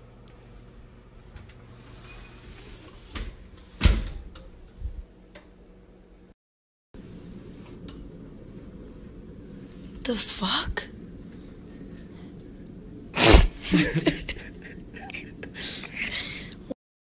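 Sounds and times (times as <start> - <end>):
oven door shutting with thud: 2.2 - 4.5.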